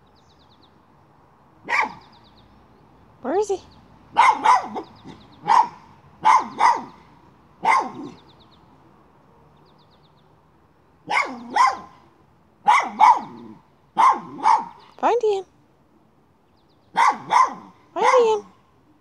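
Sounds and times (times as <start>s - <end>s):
dog barking sharply: 1.6s - 2.1s, 4.1s - 7.0s, 7.6s - 8.2s, 11.1s - 12.0s, 12.6s - 13.4s, 14.0s - 14.8s, 17.0s - 18.3s.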